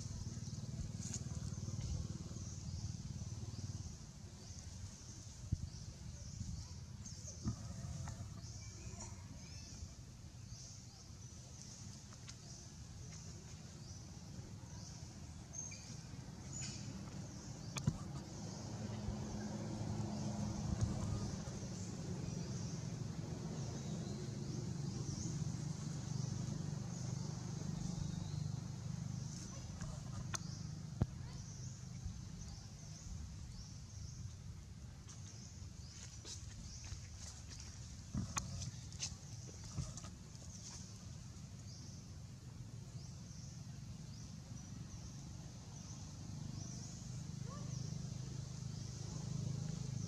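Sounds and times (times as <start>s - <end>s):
low steady rumble: 0.0s - 50.0s.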